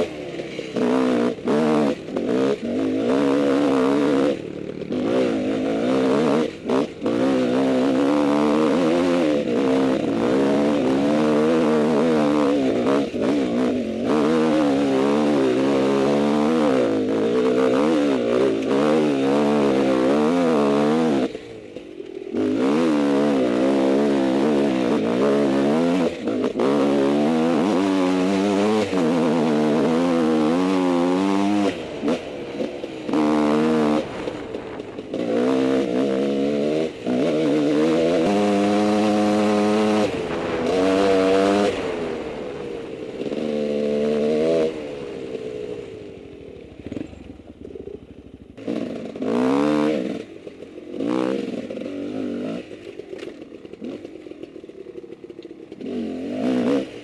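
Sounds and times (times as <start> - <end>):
dirt bike engine revving: 0.0 - 57.0.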